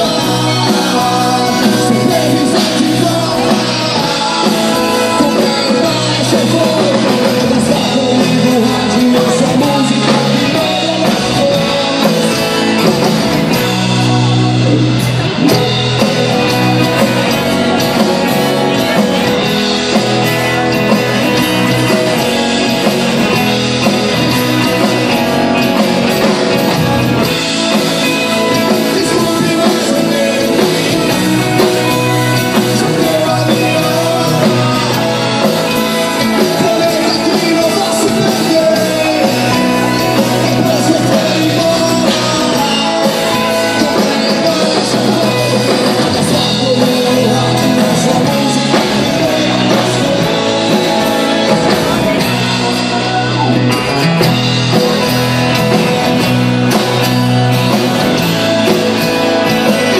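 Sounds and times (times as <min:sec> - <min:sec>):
acoustic rock band: 0:00.0 - 0:59.9
man singing: 0:00.0 - 0:59.9.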